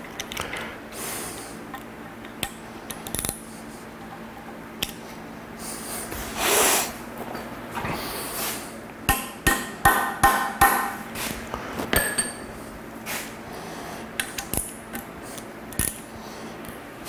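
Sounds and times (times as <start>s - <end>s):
tools clinking: 11.9s - 12.5s.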